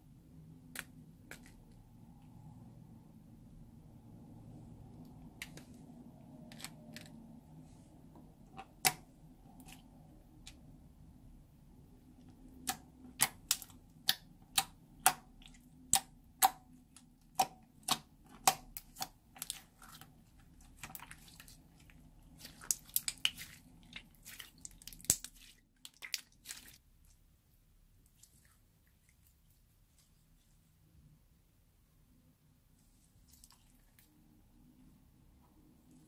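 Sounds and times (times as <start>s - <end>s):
squishy slime crackles: 17.4s - 26.8s.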